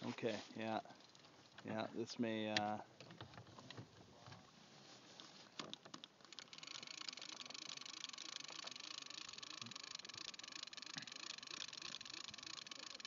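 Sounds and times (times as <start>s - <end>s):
fishing reel clicking: 5.7s - 13.0s.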